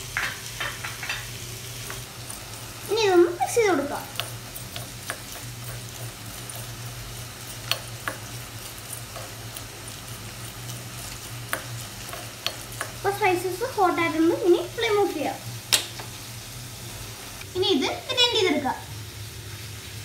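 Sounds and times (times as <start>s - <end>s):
steady low hum: 0.0s - 17.6s
spoon clicking and scraping pan: 4.1s - 13.0s.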